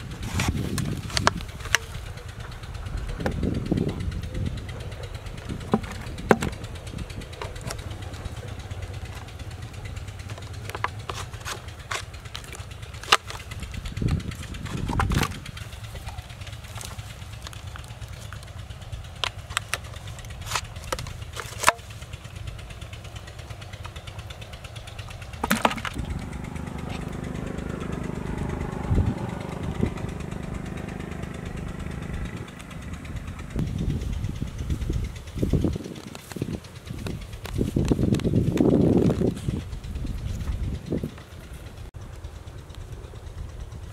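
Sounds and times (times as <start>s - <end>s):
steady low rumble: 0.0s - 43.9s
plastic clicks and knocks: 5.6s - 6.6s, 25.4s - 26.0s.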